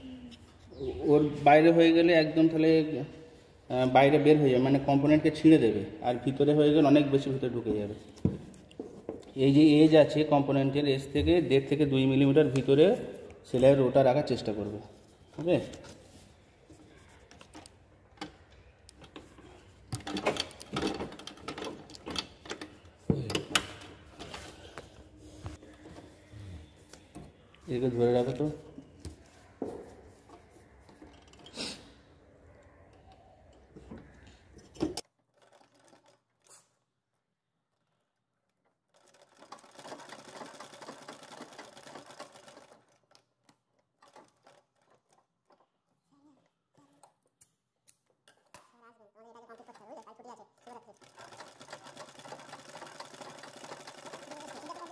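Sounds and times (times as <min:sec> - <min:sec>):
sewing machine stitching leather: 0:35.1 - 0:36.6, 0:37.7 - 0:45.7, 0:49.6 - 0:54.9.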